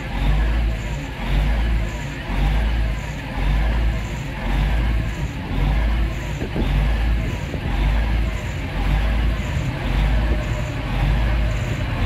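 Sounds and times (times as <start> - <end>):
diesel locomotive engine throbbing: 0.0 - 12.0.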